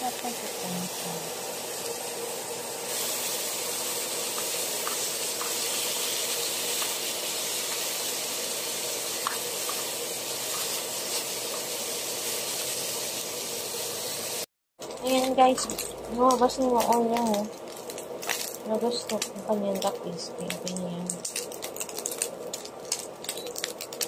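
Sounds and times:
pork sizzling in oil: 0.0 - 24.0.

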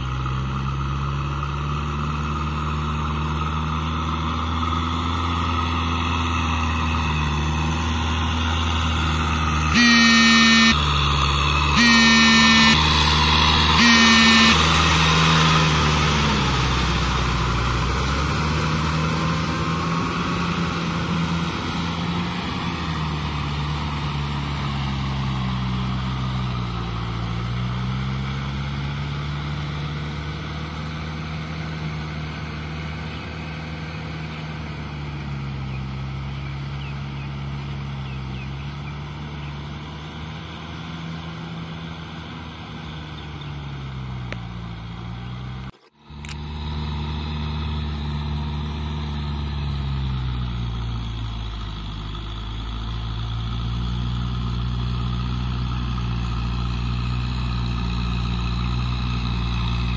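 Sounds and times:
tractor diesel engine under load: 0.0 - 59.9
rotavator churning flooded paddy: 1.0 - 59.9
horn blasts: 9.7 - 17.6.

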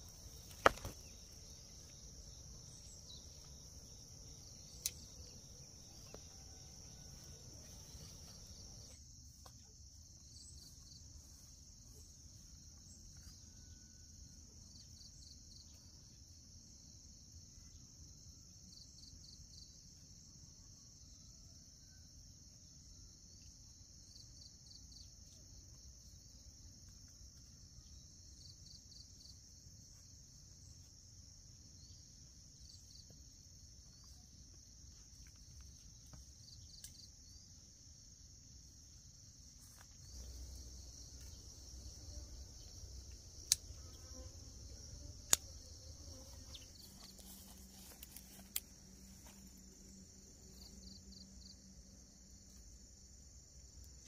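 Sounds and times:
insect chirp: 0.0 - 54.0
insect trilling: 39.6 - 52.6.

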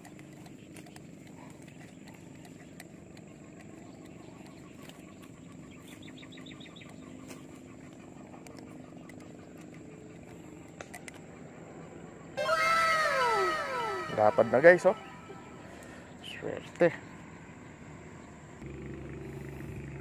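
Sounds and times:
low steady hum: 0.0 - 18.7
bird trilling chirps: 12.4 - 17.8.

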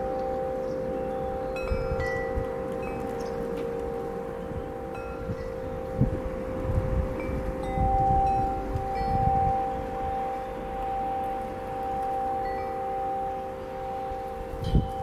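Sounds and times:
metal wind chimes ringing: 0.0 - 15.0
wind rumble on microphone: 1.4 - 15.0.

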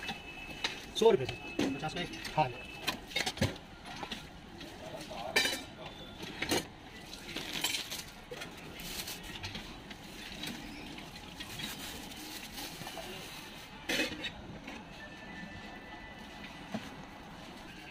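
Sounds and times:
utensils clinking on a griddle: 5.0 - 8.4.

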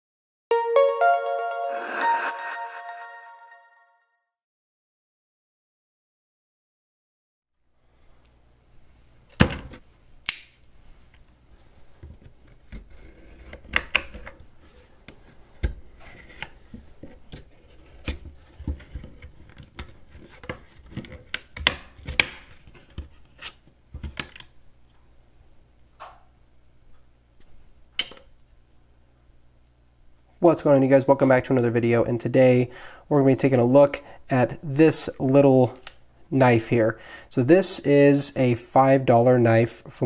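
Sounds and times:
knife scraping plastic: 12.1 - 15.0, 15.6 - 23.7.

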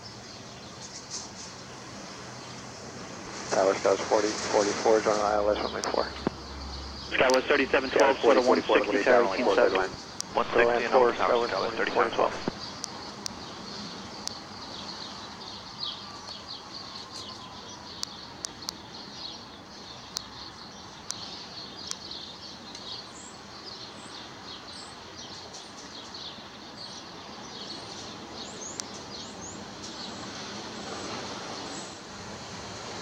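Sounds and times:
steady background hiss: 1.6 - 12.8
small birds chirping: 3.6 - 32.0
sharp clicks: 7.2 - 9.0.

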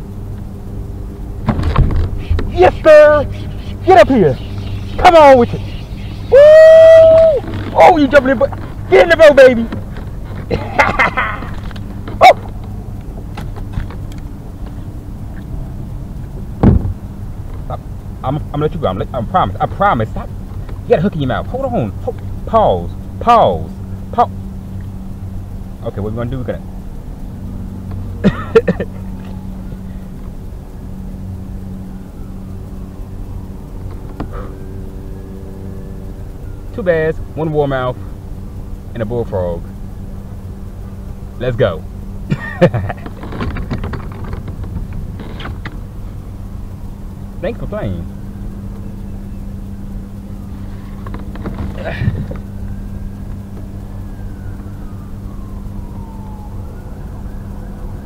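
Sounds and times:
low motor hum: 0.0 - 58.0
faint siren wailing: 2.1 - 9.6, 29.0 - 42.2, 46.0 - 58.0.

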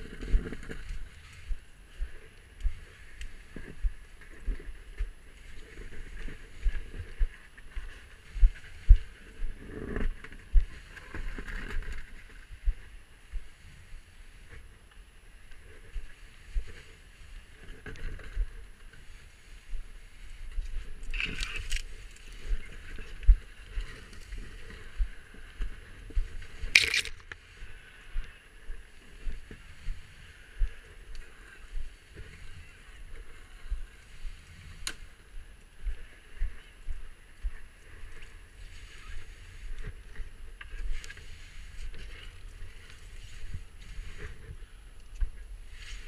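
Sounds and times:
footsteps on rocky ground: 15.9 - 46.0.

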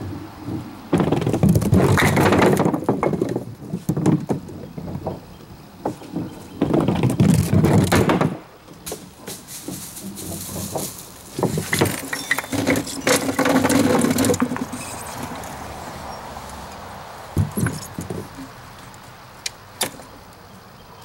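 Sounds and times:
wooden pins clattering: 0.5 - 15.6, 17.4 - 18.6.

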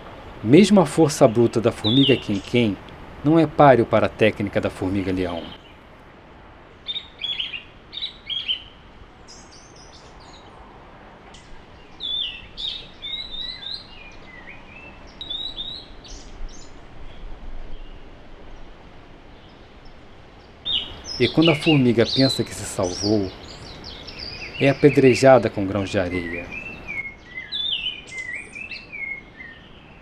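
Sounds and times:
faint steady hiss: 0.0 - 27.0
small birds chirping: 0.1 - 5.9, 6.8 - 10.5, 11.4 - 17.2, 19.4 - 30.0.

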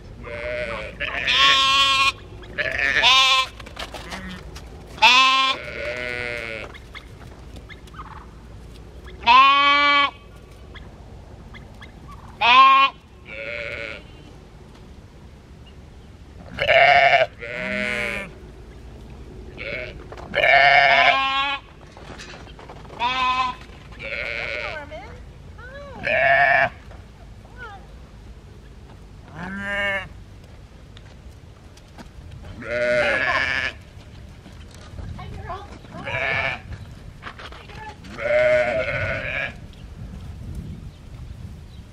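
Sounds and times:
sheep bleating: 0.2 - 4.4, 5.0 - 6.7, 9.2 - 10.2, 12.4 - 14.2, 16.5 - 18.3, 19.6 - 21.7, 23.0 - 24.9, 26.0 - 26.8, 29.3 - 30.1, 32.6 - 33.8, 36.0 - 36.7, 38.1 - 39.6.

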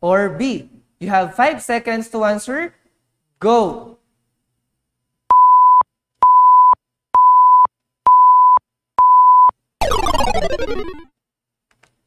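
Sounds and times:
electronic beeps: 5.4 - 11.1
burst of falling tones: 9.8 - 11.1.

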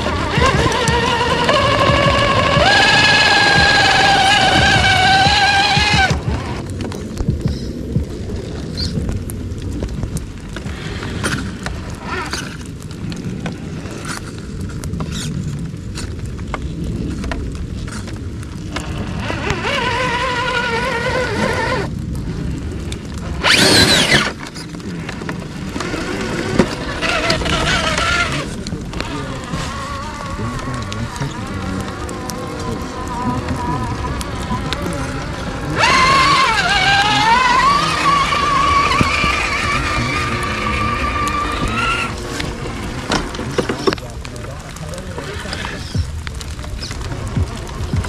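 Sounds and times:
rc car motor whining: 0.0 - 6.6, 18.7 - 21.9, 23.4 - 24.6, 25.7 - 44.0
tyres scrabbling over mud and twigs: 0.0 - 48.0.

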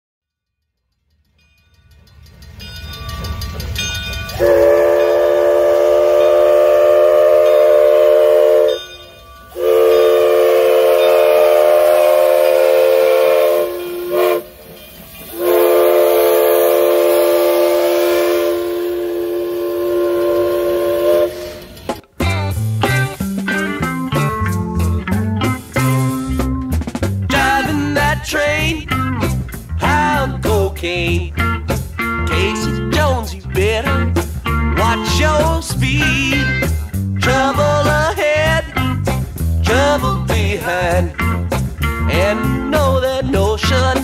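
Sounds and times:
steam locomotive chime whistle: 0.5 - 22.0.

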